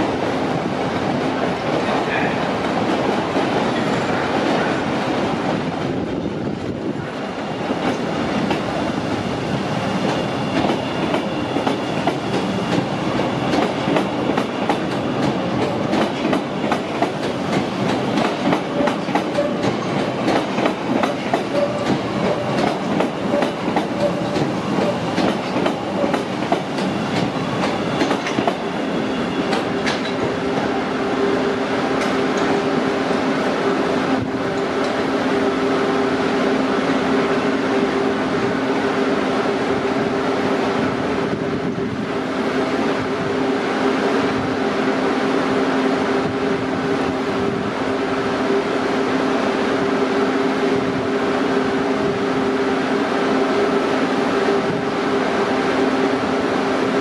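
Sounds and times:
rail car rumble: 0.0 - 57.0
wheels clacking over rail joints: 13.5 - 28.8.

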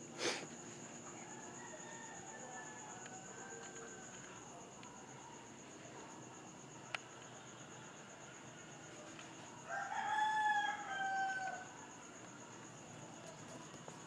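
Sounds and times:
rooster crowing: 1.2 - 4.4, 9.6 - 12.0.

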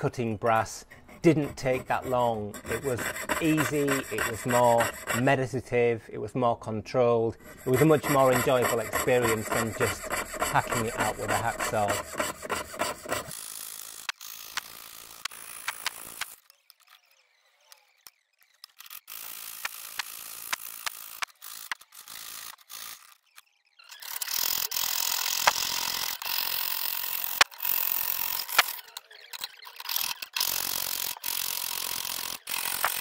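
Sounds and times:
saw cutting metal sheet: 0.0 - 5.4, 7.4 - 16.4, 23.8 - 33.0.

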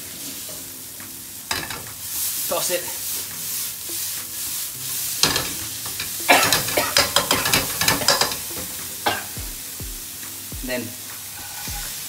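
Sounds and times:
paste sizzling in hot oil: 0.0 - 12.0
spatula scraping a pan: 1.5 - 9.4, 11.3 - 12.0.

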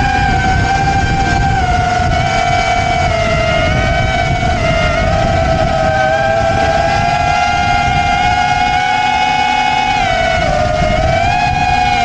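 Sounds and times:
drone motors whining: 0.0 - 12.0
wind rumble on microphone: 0.0 - 12.0.

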